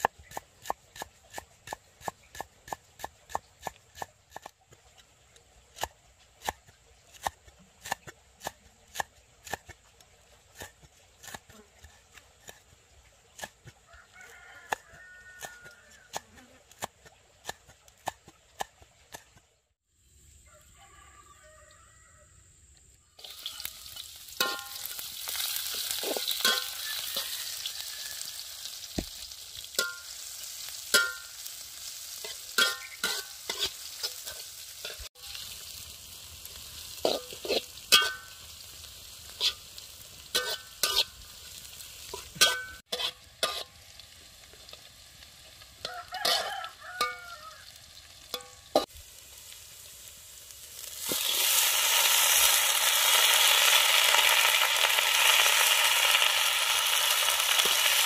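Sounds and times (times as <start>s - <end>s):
vegetables sizzling in a wok: 0.0s - 19.1s, 23.0s - 58.0s
metal spatula scraping pan: 24.4s - 28.4s, 29.8s - 35.5s, 37.0s - 38.4s, 39.3s - 41.2s, 42.1s - 43.8s, 45.8s - 47.3s, 48.3s - 48.9s.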